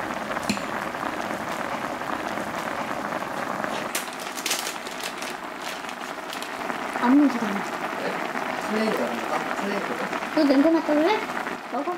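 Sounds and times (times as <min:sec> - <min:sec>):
stew bubbling in pan: 0:00.0 - 0:11.9
sharp clicks and crinkles: 0:03.7 - 0:06.6.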